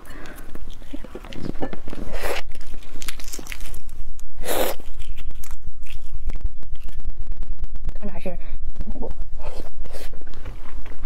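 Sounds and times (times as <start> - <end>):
eggshell cracking and peeling: 0.1 - 7.3.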